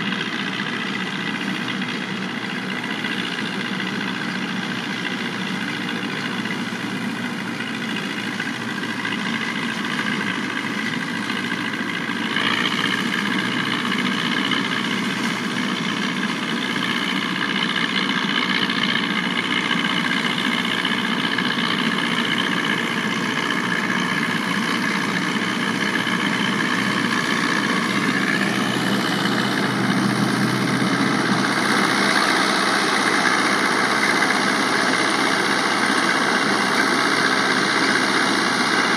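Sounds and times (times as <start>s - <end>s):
tractor and straw chopper droning: 0.0s - 38.9s.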